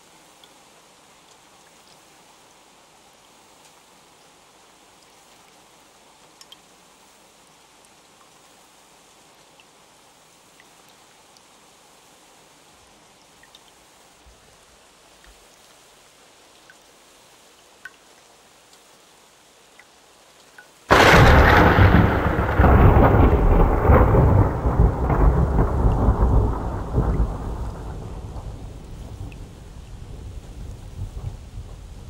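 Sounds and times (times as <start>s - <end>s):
soft rain: 0.0s - 32.0s
thunderclap rumbling: 20.9s - 32.0s.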